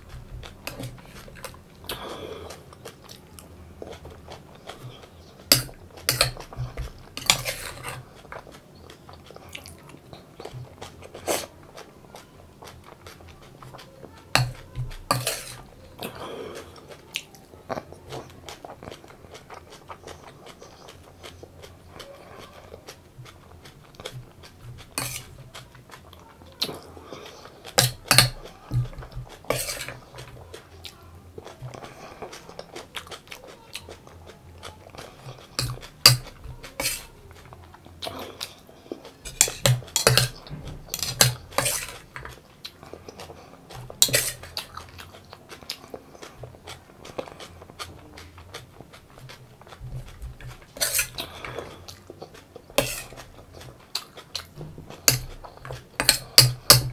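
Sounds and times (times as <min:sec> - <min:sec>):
chewing and crunching: 0:00.0 - 0:56.9
metal spoon scraping steel plate: 0:05.5 - 0:08.0, 0:14.4 - 0:15.7, 0:24.8 - 0:25.4, 0:27.8 - 0:30.2, 0:35.5 - 0:37.1, 0:39.3 - 0:42.3, 0:44.0 - 0:44.6, 0:50.7 - 0:51.2, 0:52.8 - 0:53.2, 0:54.9 - 0:56.9.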